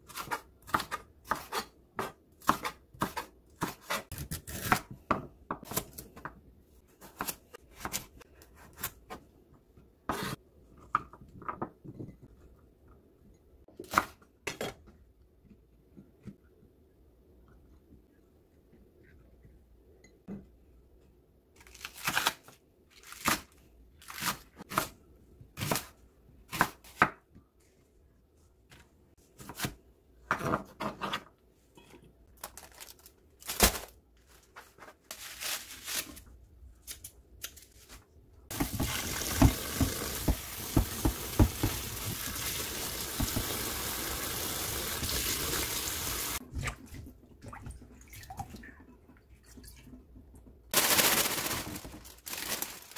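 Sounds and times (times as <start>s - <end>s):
tap water running into sink: 38.5s - 46.4s.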